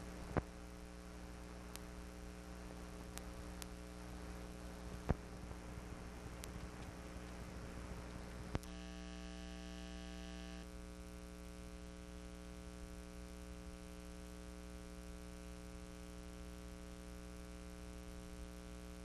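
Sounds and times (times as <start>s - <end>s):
electrical hum with hiss: 0.0s - 19.0s
click: 1.7s - 1.9s, 3.1s - 3.8s, 6.4s - 7.4s, 8.0s - 8.8s.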